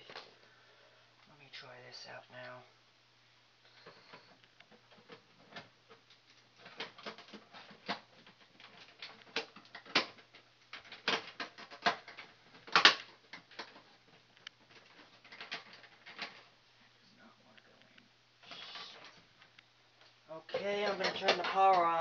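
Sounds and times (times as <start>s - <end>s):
plastic thermostat clicks and knocks: 3.9s - 16.4s, 20.5s - 22.0s.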